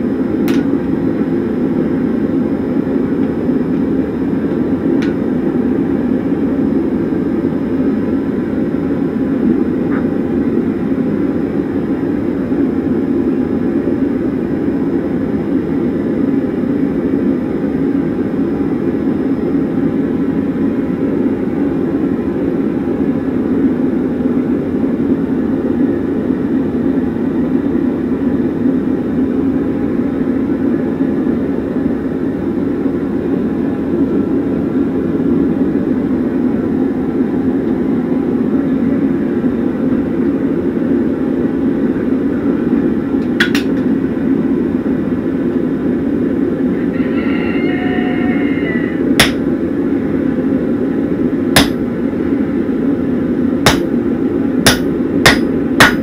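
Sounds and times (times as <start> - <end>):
sharp clank of metal: 49.2 - 49.4, 51.6 - 51.8, 53.7 - 53.9, 54.7 - 56.0.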